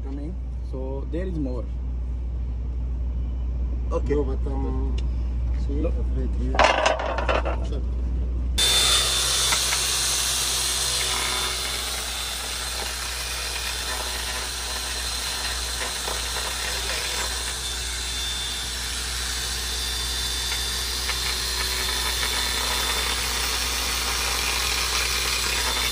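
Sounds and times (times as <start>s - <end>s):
high motor whine: 6.6s - 25.9s
angle grinder grinding tile: 8.6s - 25.9s.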